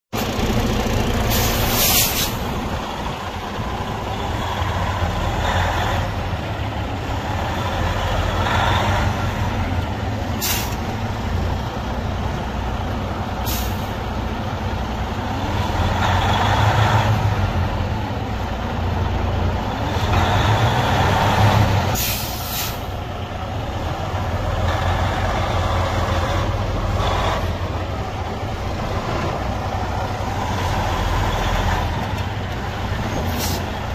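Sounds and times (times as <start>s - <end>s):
diesel truck engine idling: 0.2s - 33.9s
air brake hisses: 1.3s - 2.4s, 10.4s - 10.8s, 13.4s - 13.9s, 21.9s - 22.9s, 33.3s - 33.7s.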